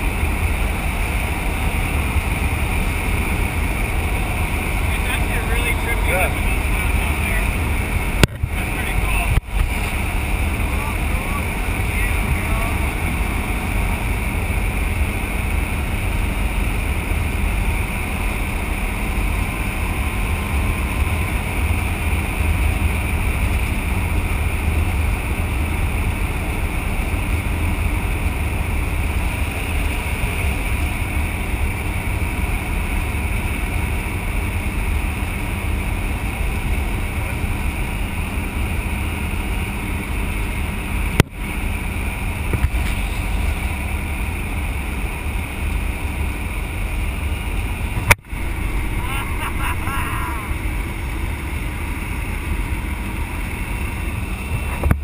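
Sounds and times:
airplane engine running: 0.0 - 55.0.

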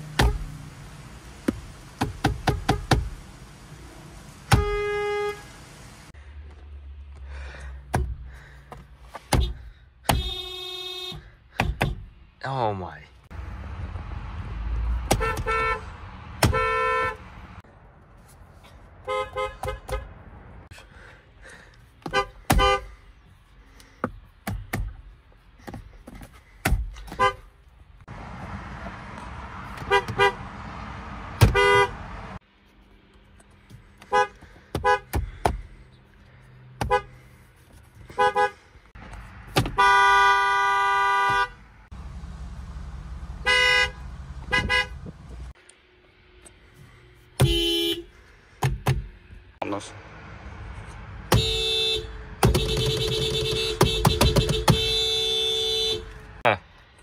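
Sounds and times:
car horns honking: 2.3 - 3.2, 4.4 - 5.8, 9.3 - 11.4, 15.0 - 17.6, 19.0 - 20.3, 22.0 - 23.0, 27.0 - 27.5, 29.7 - 30.7, 31.3 - 32.4, 34.0 - 35.2, 36.8 - 37.2, 38.1 - 38.6, 39.5 - 41.9, 43.3 - 45.2, 47.4 - 48.2, 51.2 - 56.4.

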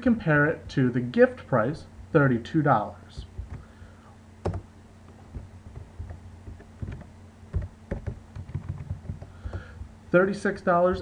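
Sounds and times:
keyboard typing: 3.2 - 3.7, 4.4 - 9.8.

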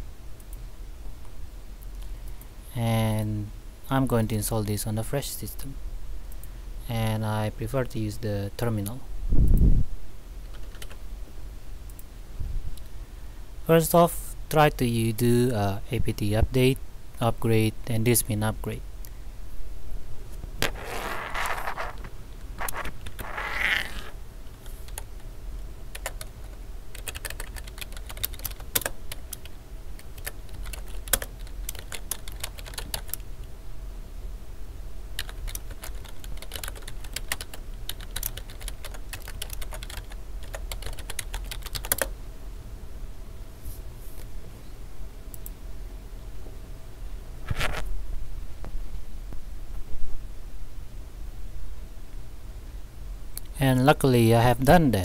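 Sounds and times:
steady low hum: 0.0 - 55.0
keyboard typing: 10.5 - 11.0, 25.9 - 33.2, 35.2 - 42.1
soft hissing noises: 20.2 - 25.1, 43.5 - 44.9.

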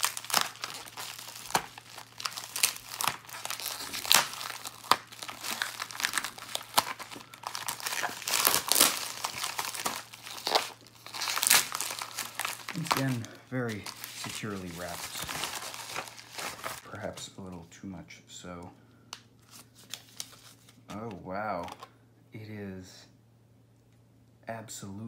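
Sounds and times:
envelope and plastic crinkling: 0.0 - 17.0, 19.4 - 21.9.

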